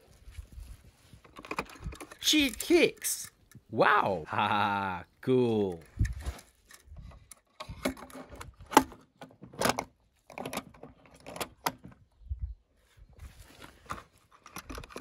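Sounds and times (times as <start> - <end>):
soft scraping rustle: 0.0 - 1.9, 12.8 - 14.3
toy cars clicking on wooden ramp: 1.3 - 3.6, 14.3 - 15.0.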